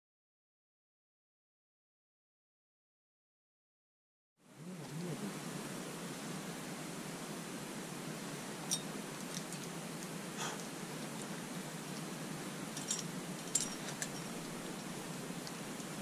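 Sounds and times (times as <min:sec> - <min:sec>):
steady background hiss: 0:04.4 - 0:16.0
carabiners clinking: 0:12.8 - 0:16.0.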